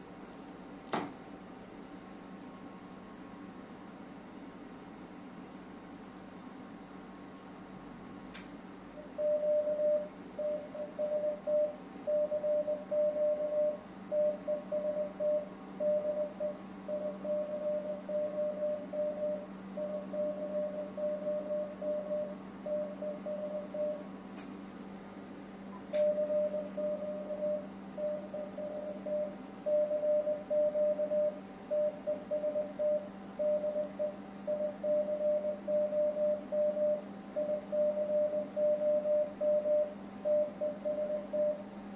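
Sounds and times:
steady low hum: 0:00.0 - 0:41.9
morse code tone: 0:09.0 - 0:24.0, 0:26.0 - 0:41.6.

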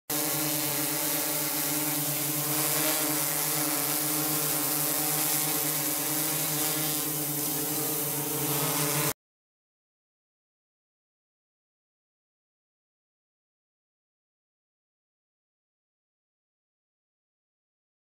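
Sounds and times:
propeller blades rushing hiss: 0:00.2 - 0:09.1.

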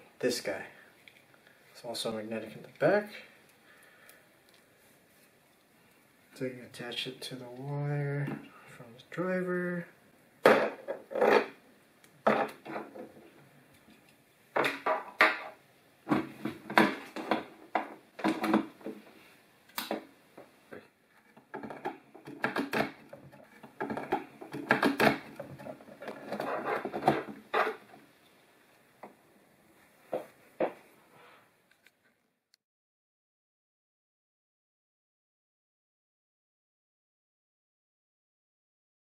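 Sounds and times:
hands handling wires and connectors: 0:20.7 - 0:28.0.

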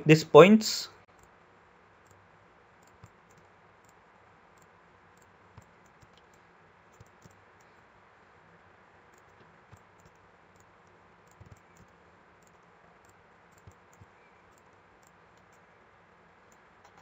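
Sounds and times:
low room hiss: 0:00.0 - 0:17.0
faint computer mouse clicks: 0:04.6 - 0:07.7, 0:11.3 - 0:15.6.

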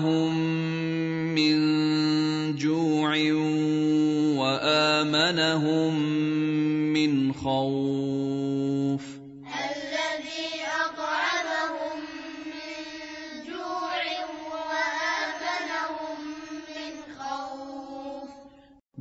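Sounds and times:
high-pitched voices chanting: 0:09.4 - 0:18.7.

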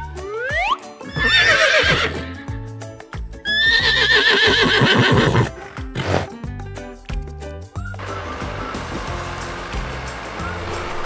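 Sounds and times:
background music with steady beat: 0:00.0 - 0:11.0
horse whinnying: 0:00.5 - 0:02.4, 0:03.4 - 0:06.3.

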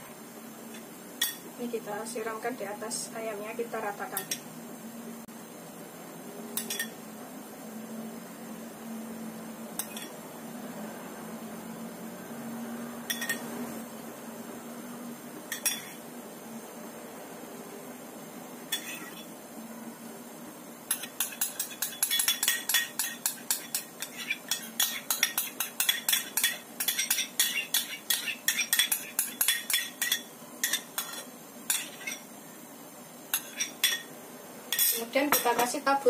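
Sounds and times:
metal spoon clinking on a bowl: 0:06.6 - 0:07.0, 0:09.8 - 0:10.2, 0:13.1 - 0:13.4, 0:15.5 - 0:16.0, 0:20.9 - 0:32.2, 0:34.7 - 0:35.8.

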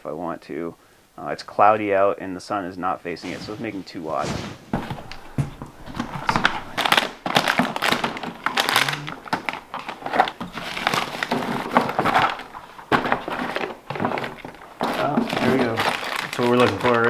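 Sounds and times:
packaging crinkling: 0:04.7 - 0:17.0
tools clattering in plastic toolbox: 0:06.0 - 0:17.0.

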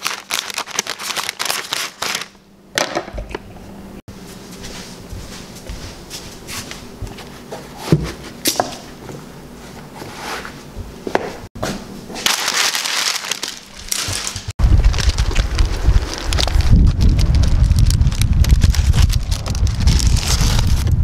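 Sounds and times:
footsteps on wooden floor: 0:04.2 - 0:08.3
wind buffeting microphone: 0:14.6 - 0:21.0.

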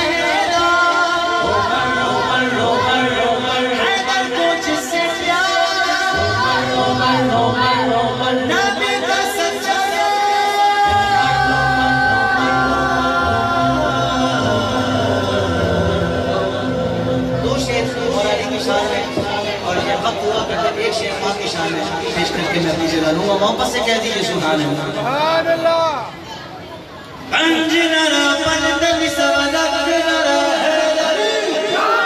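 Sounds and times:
man singing lead vocal: 0:00.0 - 0:25.6, 0:27.3 - 0:32.0
low sustained backing voices: 0:00.0 - 0:32.0.

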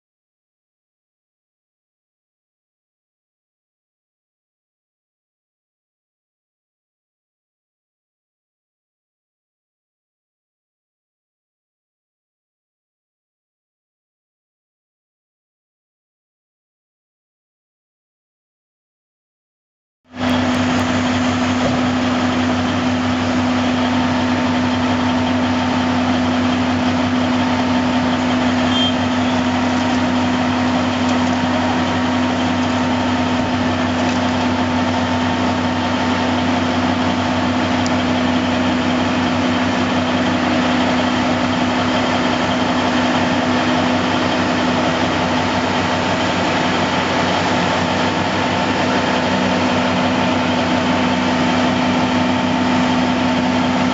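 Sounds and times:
diesel engines idling: 0:20.2 - 0:53.9.

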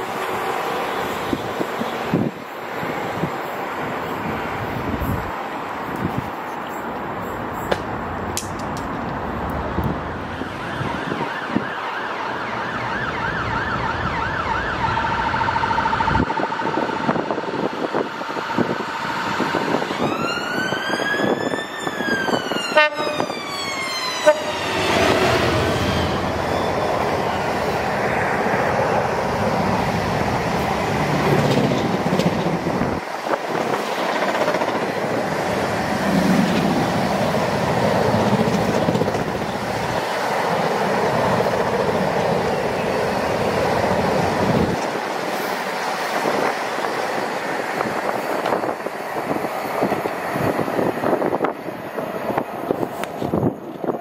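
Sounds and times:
locomotive horn blasts: 0:22.7 - 0:23.4, 0:24.2 - 0:24.8
rattle of freight wagons: 0:31.1 - 0:35.2.

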